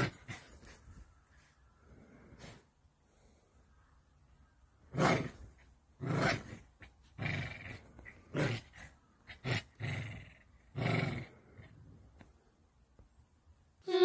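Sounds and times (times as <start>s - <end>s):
dog growling: 4.9s - 11.9s.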